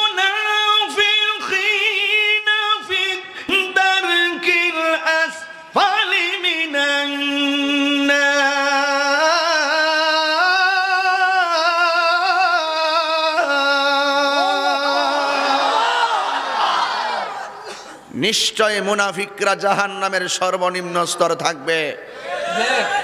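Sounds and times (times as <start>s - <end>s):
person singing long notes: 7.2s - 15.9s.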